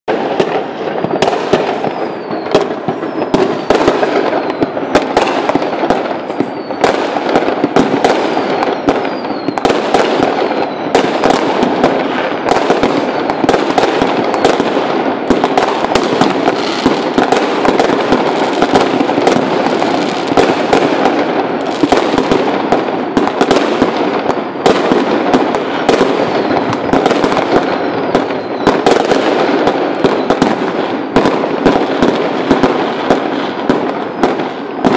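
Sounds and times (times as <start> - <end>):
fireworks crackling and banging: 0.0 - 34.9
firework whistle falling in pitch: 0.3 - 11.4, 27.9 - 28.9.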